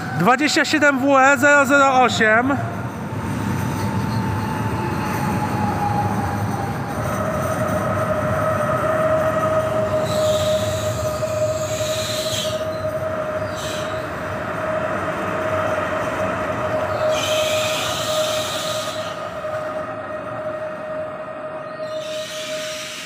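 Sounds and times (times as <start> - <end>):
electric train high tone and rumble: 0.0 - 23.0
train air hiss: 9.9 - 12.8, 13.4 - 14.1, 16.9 - 19.5, 21.8 - 23.0.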